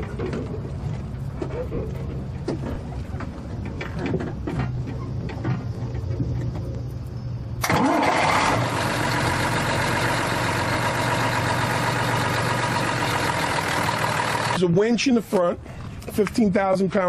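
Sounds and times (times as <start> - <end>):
diesel engine idling: 0.0 - 14.8
diesel engine starter cranking: 7.6 - 14.6.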